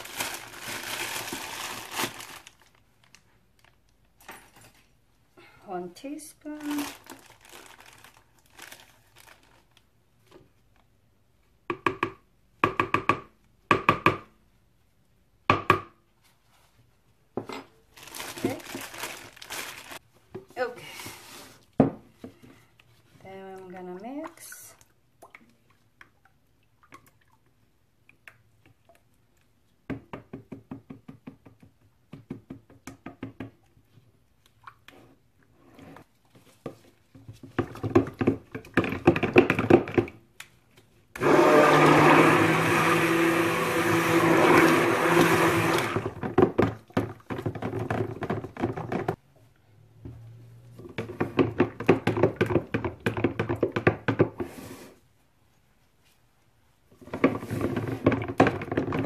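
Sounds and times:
stick blender whirring: 0:41.2 - 0:46.2.

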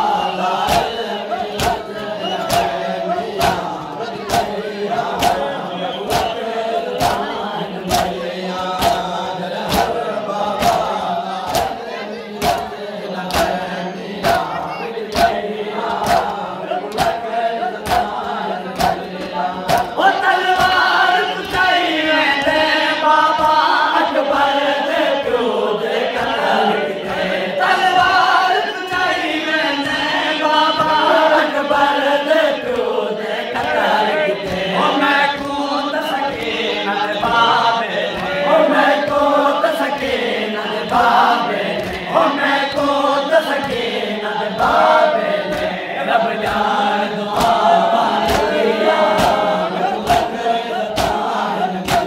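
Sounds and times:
men chanting together: 0:00.0 - 0:52.0
hand slaps on chests: 0:00.5 - 0:11.8, 0:12.4 - 0:13.6, 0:14.2 - 0:20.0, 0:41.7 - 0:42.1, 0:45.4 - 0:45.7, 0:47.4 - 0:47.6, 0:48.2 - 0:52.0.

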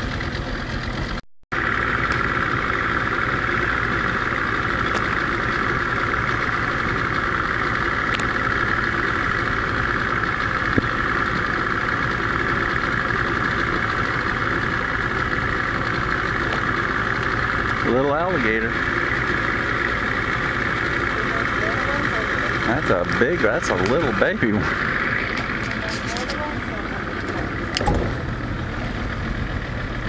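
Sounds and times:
boat motor idling: 0:00.0 - 0:30.0.

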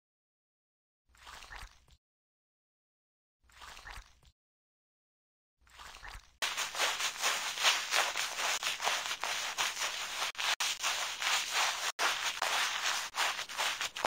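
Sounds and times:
brush scrubbing soapy lather: 0:06.4 - 0:14.0.

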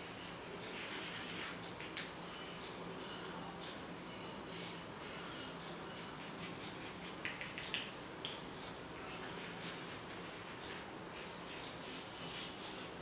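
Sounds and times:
chalk scratching on blackboard: 0:00.0 - 0:02.0, 0:05.4 - 0:07.7, 0:09.0 - 0:13.0
chalk tapping on board: 0:00.8 - 0:02.1, 0:06.0 - 0:08.4.

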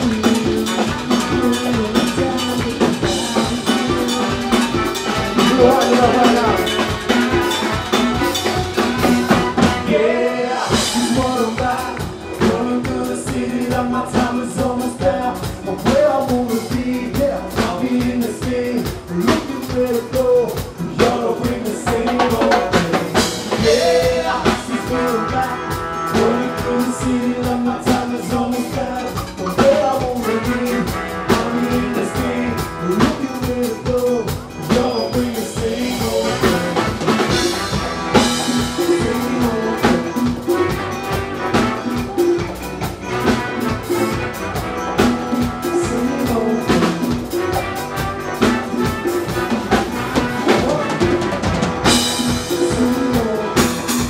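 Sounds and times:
lead vocalist singing: 0:00.0 - 0:54.0
live band music: 0:00.0 - 0:54.0
percussion drums: 0:00.0 - 0:54.0.

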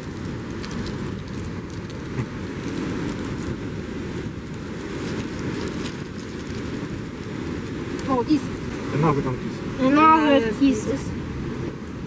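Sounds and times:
plastic wrapper crackling: 0:00.0 - 0:08.1
wind on microphone: 0:00.0 - 0:12.0.

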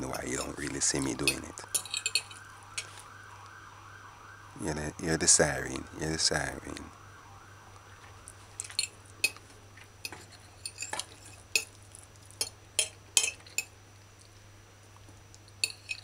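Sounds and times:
metal fork clinking on plate: 0:00.4 - 0:02.9, 0:08.6 - 0:09.4, 0:10.0 - 0:11.8, 0:12.4 - 0:13.7, 0:15.6 - 0:16.0.

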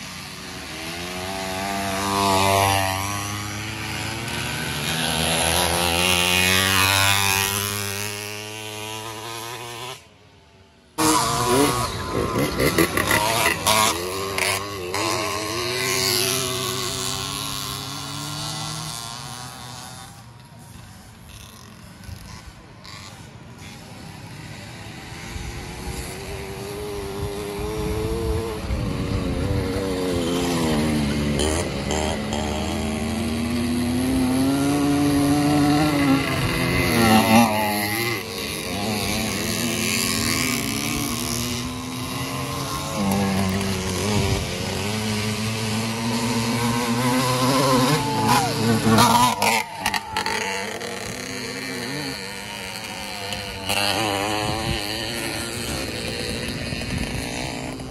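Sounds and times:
small two-stroke engines buzzing: 0:00.0 - 0:57.9.

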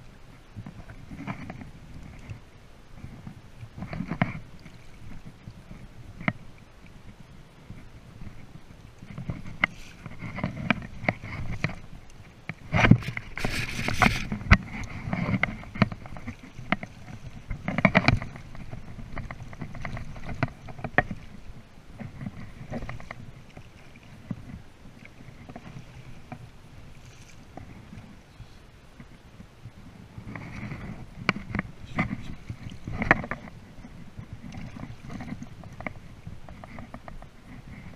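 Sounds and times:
water splashing around landing net: 0:08.9 - 0:28.0.

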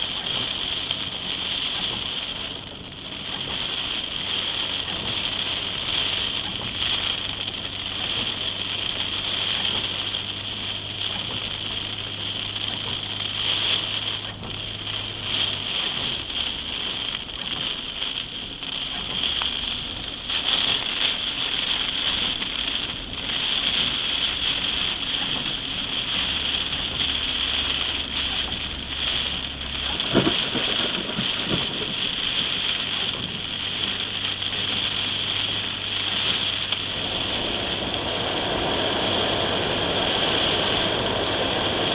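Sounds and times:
heavy rain on car roof: 0:00.0 - 0:41.9
low engine hum: 0:00.0 - 0:41.9.

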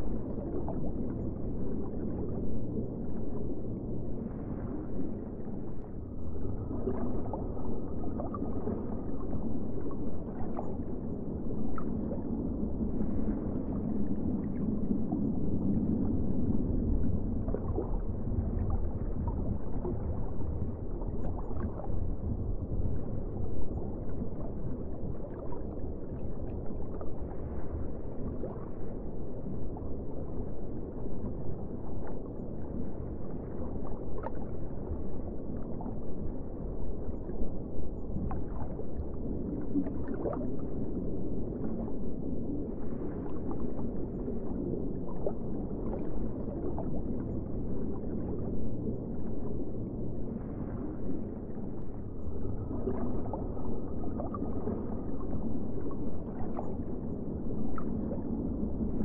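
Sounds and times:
underwater rumble: 0:00.0 - 0:59.0
bubbling gurgles: 0:05.5 - 0:37.4, 0:38.0 - 0:59.0.

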